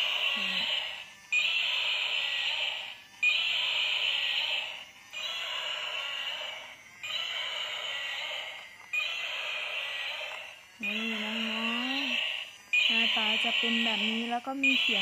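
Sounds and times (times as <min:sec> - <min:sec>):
electronic toy roar: 0:00.0 - 0:15.0.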